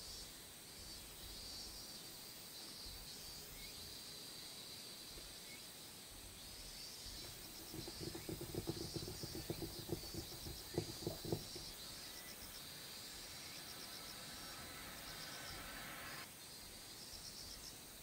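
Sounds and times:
high insect trill: 6.6s - 18.0s
charcoal stroking paper: 7.2s - 11.6s.

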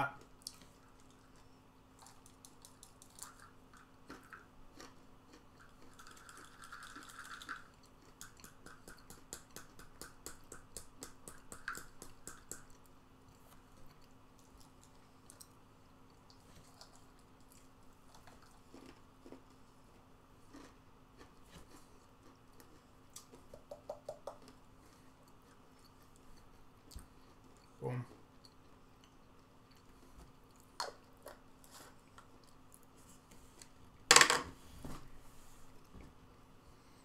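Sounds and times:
crunchy chewing: 0.4s - 9.8s, 12.7s - 23.6s.

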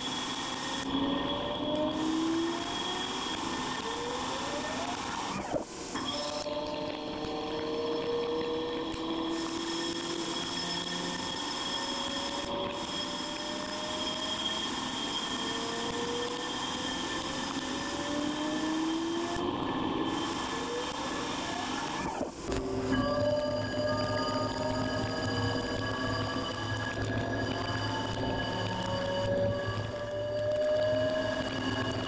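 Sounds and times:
spindle whine: 0.0s - 32.0s
cutting and coolant spray hiss: 1.9s - 7.4s, 9.1s - 13.4s.

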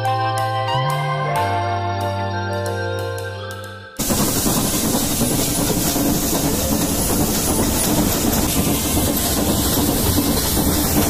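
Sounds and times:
steam locomotive hissing: 4.0s - 11.0s
train wheels on rails: 4.0s - 11.0s.

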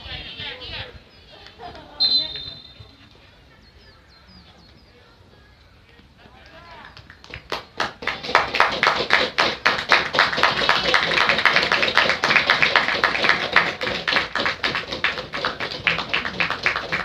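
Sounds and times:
crowd clapping in rhythm: 6.8s - 17.0s.

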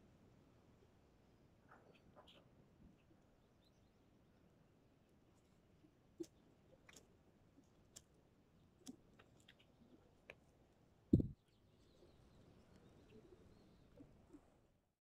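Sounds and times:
faint clicks: 6.2s - 8.1s
low thump: 11.2s - 11.4s.

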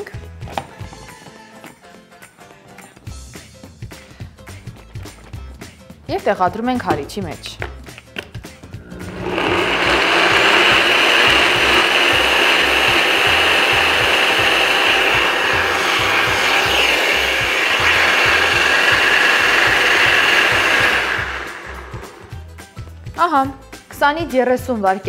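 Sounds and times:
blender running: 8.7s - 22.4s.

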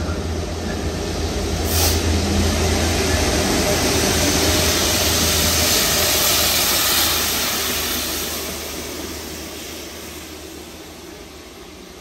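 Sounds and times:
diesel locomotive engine running: 0.0s - 12.0s
hiss of water jets: 1.6s - 3.0s, 3.7s - 10.4s.

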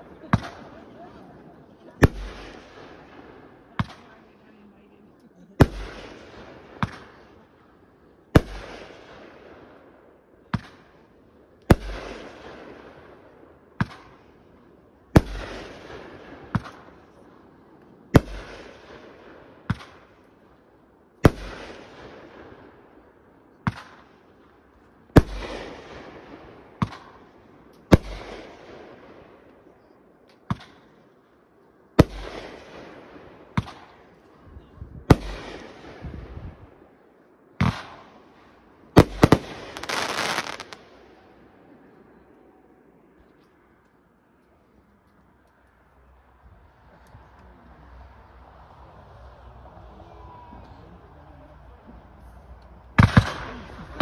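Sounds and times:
firework bangs: 0.0s - 4.2s, 5.6s - 7.4s, 15.1s - 17.1s, 25.1s - 29.4s, 32.0s - 34.1s, 37.6s - 40.9s, 53.0s - 54.0s
firework crackle: 38.9s - 40.8s.

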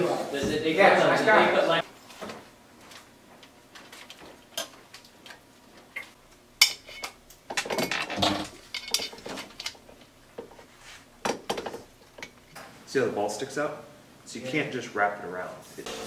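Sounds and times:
metal parts clinking on workbench: 6.6s - 9.8s.

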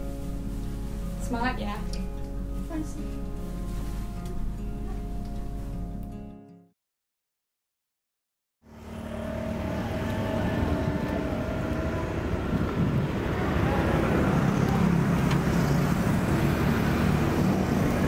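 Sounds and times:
steady engine hum: 8.6s - 18.0s
cars passing: 8.7s - 18.0s
motorbikes passing: 8.7s - 18.0s.

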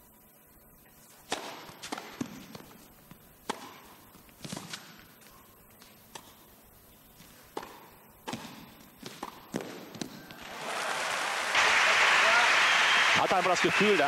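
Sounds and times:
faint hall ambience: 0.0s - 14.0s
tennis ball struck by rackets: 1.3s - 2.7s, 3.4s - 5.0s, 7.5s - 10.1s
ball bouncing on court: 3.4s - 4.9s, 7.5s - 10.4s.

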